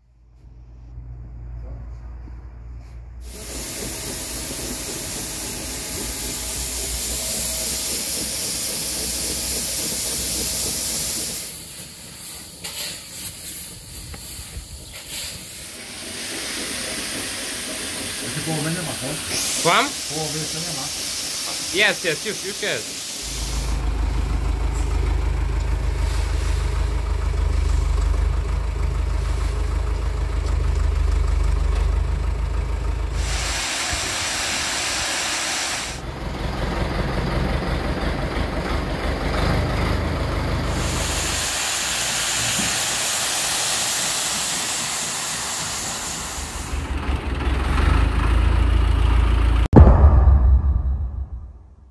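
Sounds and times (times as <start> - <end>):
tractor diesel engine running: 3.2 - 20.3, 23.2 - 49.7
grain pouring hiss: 3.2 - 27.4, 29.0 - 29.9, 33.1 - 36.0, 40.6 - 47.0.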